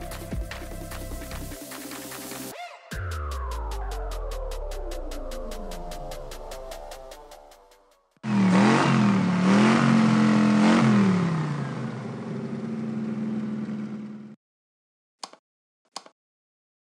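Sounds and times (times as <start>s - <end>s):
car engine revving and idling: 8.2s - 14.4s
short clicks: 15.2s - 16.2s.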